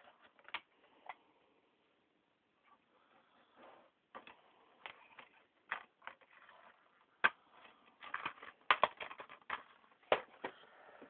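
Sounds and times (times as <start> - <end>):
plastic dvd cases clicking: 8.0 - 10.6.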